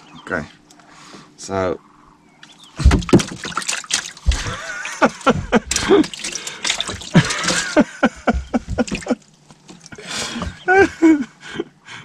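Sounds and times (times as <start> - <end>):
water splashing and trickling: 2.4 - 10.6.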